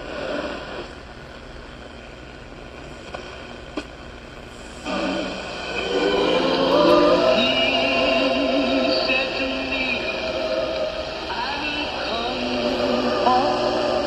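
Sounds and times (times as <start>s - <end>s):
music from radio: 0.0s - 14.0s
radio static hiss: 0.0s - 14.0s
radio clicks: 2.7s - 4.1s.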